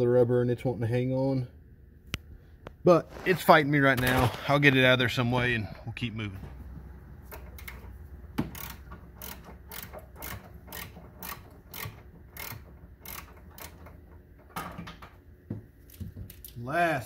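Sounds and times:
ratchet clicking: 0:07.3 - 0:14.2.

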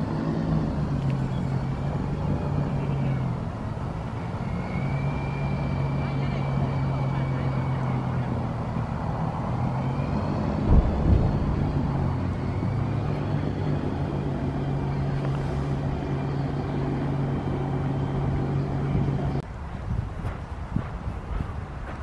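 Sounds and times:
engine humming: 0:00.0 - 0:22.0
low thumps: 0:10.5 - 0:12.2.

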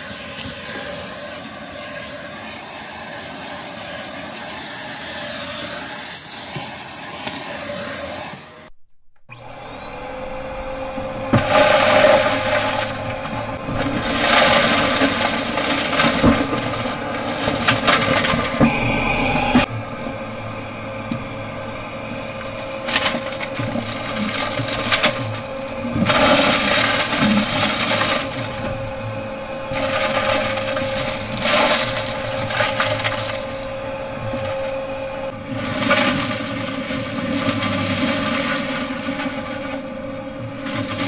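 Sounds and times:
vacuum cleaner running: 0:00.0 - 0:41.0
debris rattling up vacuum nozzle: 0:11.2 - 0:18.7.

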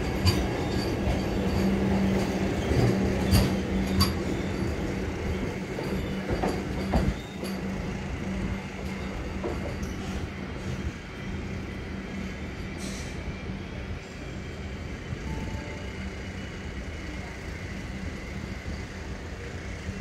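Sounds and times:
wheels clicking on track: 0:00.0 - 0:10.8
electric train hum and rumble: 0:00.0 - 0:20.0.

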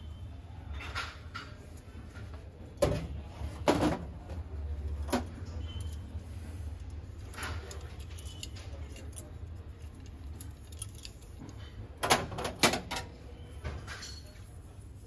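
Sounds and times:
small metal objects clinking: 0:07.5 - 0:11.7.

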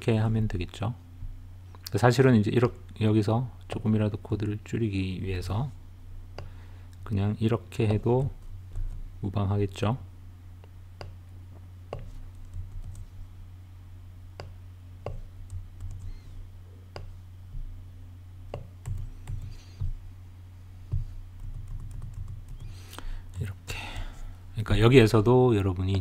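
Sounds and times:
steady low hum: 0:00.0 - 0:26.0
computer keyboard keystrokes: 0:21.4 - 0:22.7.

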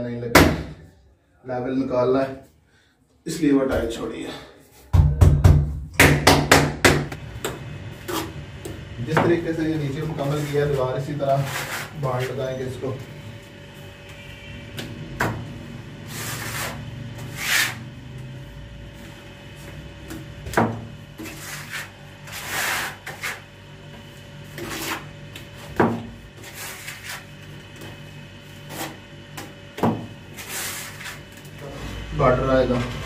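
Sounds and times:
trowel scraping mortar: 0:10.2 - 0:12.6, 0:16.1 - 0:17.8, 0:21.1 - 0:29.0, 0:30.3 - 0:31.3.

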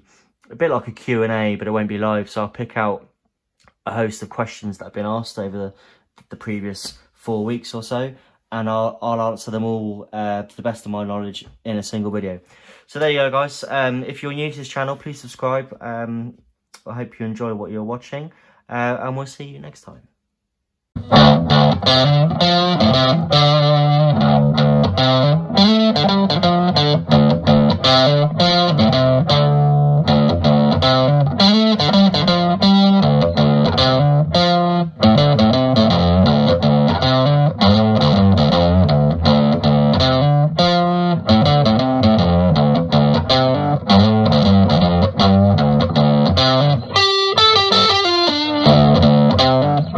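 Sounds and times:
electric guitar music: 0:21.0 - 0:49.9.

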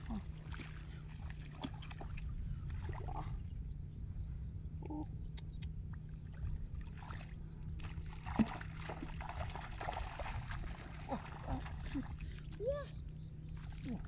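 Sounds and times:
feet splashing through muddy water: 0:00.0 - 0:03.5, 0:06.3 - 0:14.0
steady low rumble: 0:00.0 - 0:14.0.

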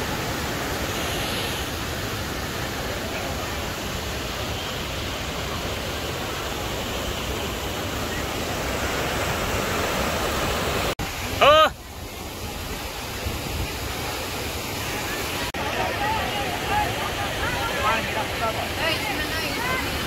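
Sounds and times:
river water rushing over rapids: 0:00.0 - 0:20.0.

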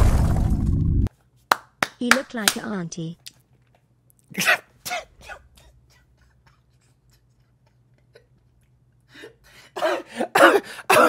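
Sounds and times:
man wheezing laughter: 0:05.6 - 0:11.0.

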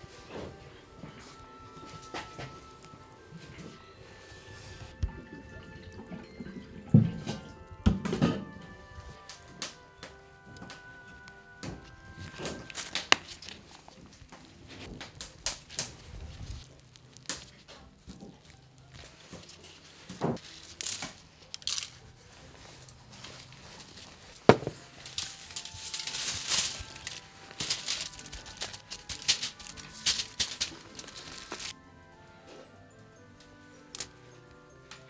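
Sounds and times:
rustling crinkling noise: 0:00.0 - 0:31.8, 0:33.7 - 0:35.0
handling knocks and clicks: 0:11.6 - 0:22.0, 0:22.7 - 0:31.7.

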